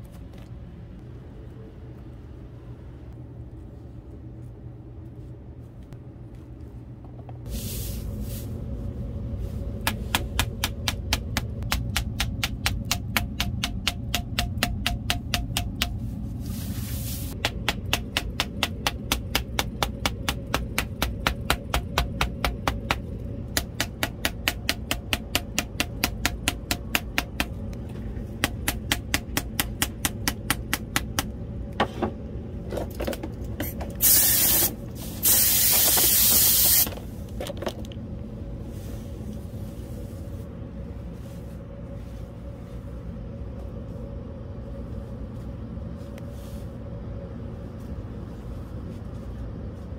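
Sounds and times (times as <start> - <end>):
steady low hum: 0.0 - 49.9
loud hissing blasts: 7.5 - 8.6, 34.0 - 36.9
wooden mallet tapping on board: 9.9 - 16.0, 17.4 - 27.5.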